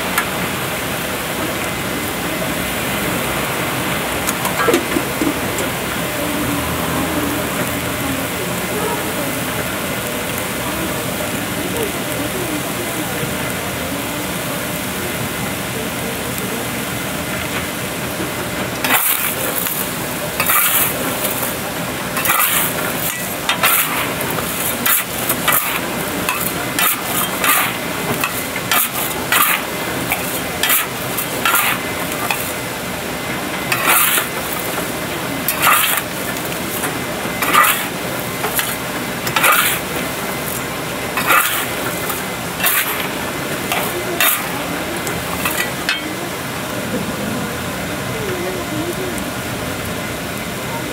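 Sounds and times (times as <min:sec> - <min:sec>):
steady hiss: 0:00.0 - 0:50.8
chestnuts and stones rattling in pan: 0:18.7 - 0:32.7, 0:33.3 - 0:46.1.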